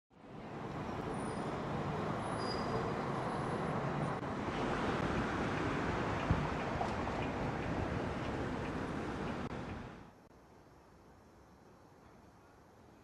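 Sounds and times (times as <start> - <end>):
road traffic noise: 0.1 - 10.3.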